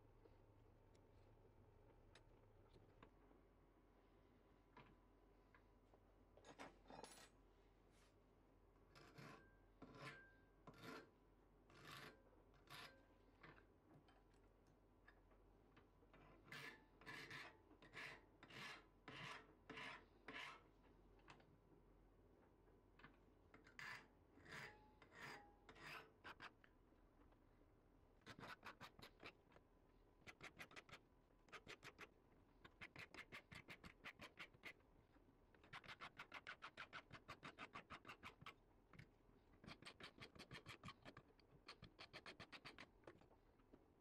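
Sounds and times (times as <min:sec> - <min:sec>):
metal file rasping on metal: 0:11.7 - 0:13.0, 0:28.2 - 0:29.4, 0:35.6 - 0:38.5.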